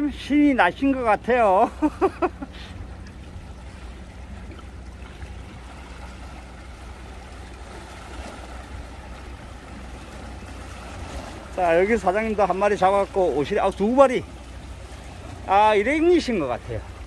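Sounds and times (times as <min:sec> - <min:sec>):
small waves washing against rocks: 0:03.5 - 0:17.0.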